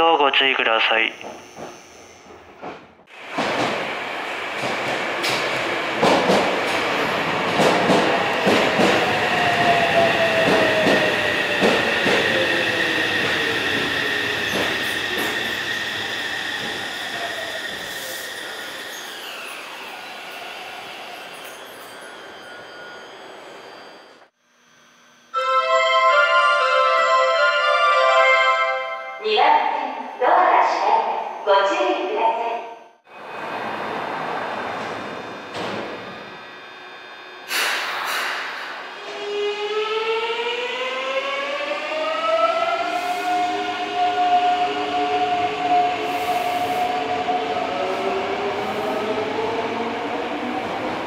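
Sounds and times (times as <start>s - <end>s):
train rolling noise: 0.8s - 24.3s, 33.1s - 51.0s
train inverter whine: 32.7s - 51.0s.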